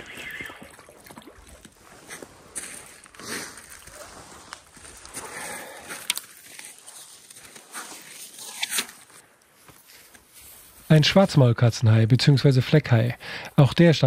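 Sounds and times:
handling scuffs and rustles: 5.9 - 10.8.

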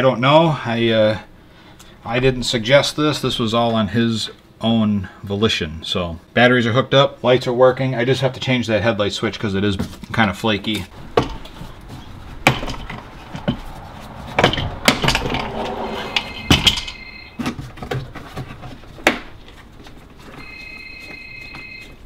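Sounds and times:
steady high beep: 16.0 - 17.4, 20.4 - 21.9.

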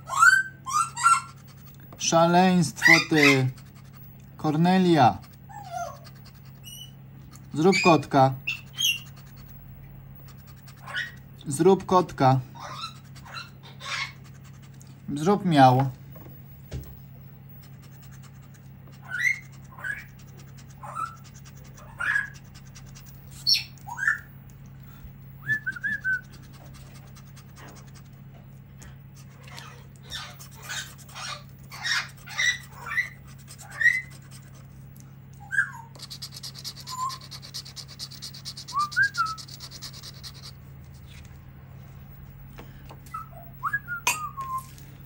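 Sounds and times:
parrot whistling and squawking: 0.0 - 1.4, 2.7 - 3.5, 5.0 - 7.0, 7.6 - 9.3, 10.8 - 11.2, 12.6 - 14.3, 18.9 - 20.2, 20.8 - 22.5, 23.3 - 24.3, 25.4 - 26.6, 29.5 - 34.2, 35.4 - 40.6, 43.0 - 44.7
low steady hum: 0.0 - 45.0.

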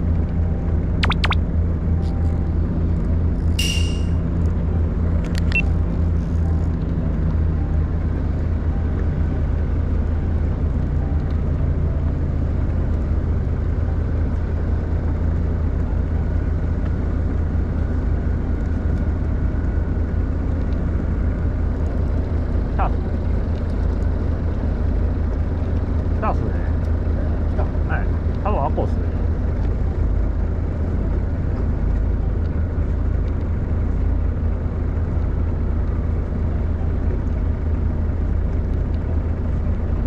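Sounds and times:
boat engine humming: 0.0 - 40.0
short clicks: 1.0 - 1.4.

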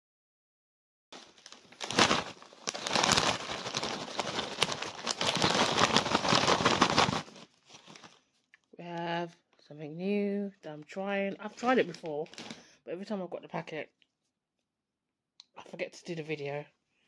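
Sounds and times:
crisp packet crinkling: 1.2 - 8.5, 11.5 - 12.7.

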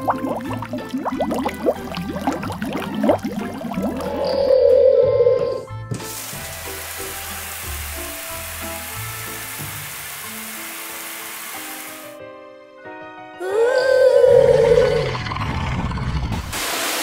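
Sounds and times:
soft background music: 0.0 - 16.0
water spray hissing: 6.0 - 12.2, 16.5 - 17.0.

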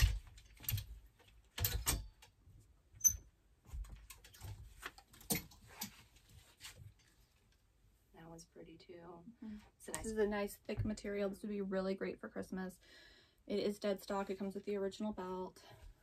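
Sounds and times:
fabric rustling: 4.4 - 7.5.

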